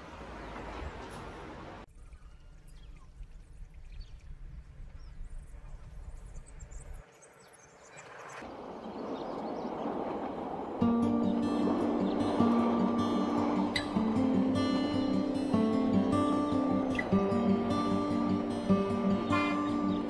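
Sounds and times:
railcar running past: 0.0 - 1.8, 8.4 - 20.0
approaching train rushing: 8.1 - 20.0.

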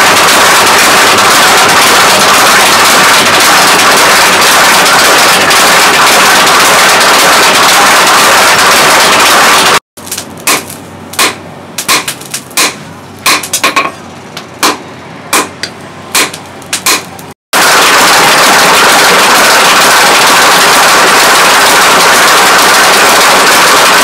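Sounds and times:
power hammer pounding steel: 0.0 - 9.8, 10.4 - 24.0
hammer striking steel on anvil: 10.5 - 14.0, 14.6 - 17.1.

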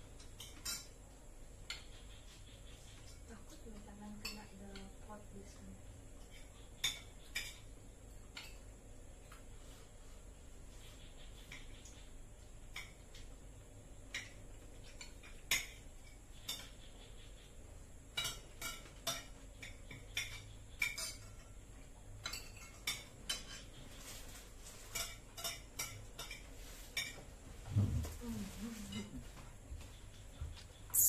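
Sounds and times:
spoon clinking against bowls: 18.1 - 21.6, 22.2 - 23.7, 24.8 - 27.2.

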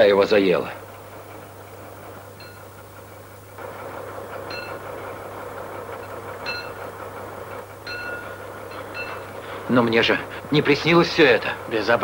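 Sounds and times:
steady low hum: 0.0 - 12.0
winch gears grinding: 0.0 - 12.0.

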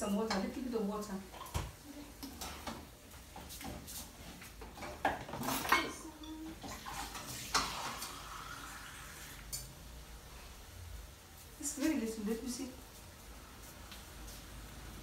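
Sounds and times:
metal pot and utensils clinking: 4.7 - 8.2.

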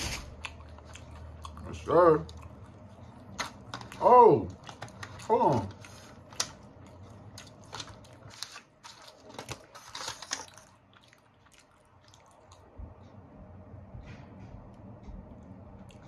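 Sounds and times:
foil tray crinkling: 3.4 - 10.8
paper wrapper rustling: 7.3 - 10.8.

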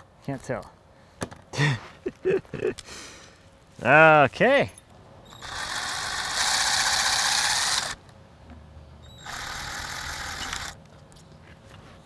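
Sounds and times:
cordless drill running: 5.3 - 8.0, 9.2 - 10.8.

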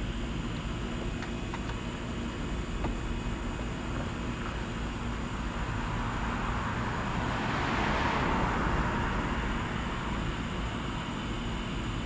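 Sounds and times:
car passing: 7.1 - 9.5.

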